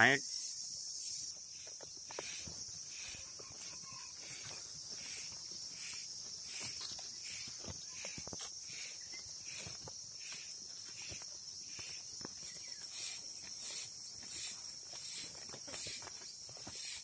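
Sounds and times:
insects trilling: 0.0 - 17.0
pulsing insect chirp: 0.0 - 17.0
goats moving on straw: 2.1 - 17.0.

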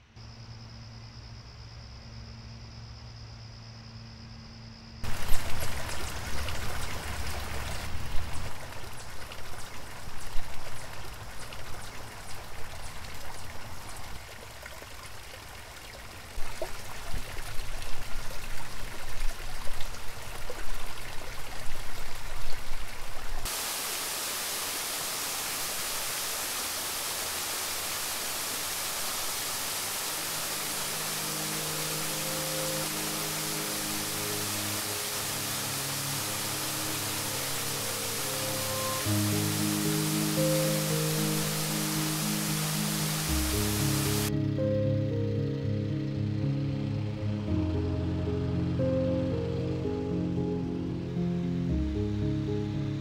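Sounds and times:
water splashing over rocks: 5.0 - 44.3
waterfall pouring into pool: 5.0 - 44.3.

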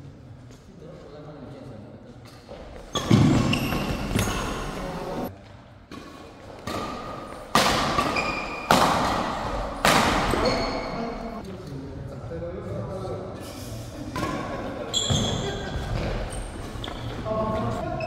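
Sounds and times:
shoes squeaking on court: 2.5 - 5.3, 6.4 - 8.7, 10.3 - 11.2, 14.9 - 18.0
racket hitting shuttlecock: 5.9 - 10.6.

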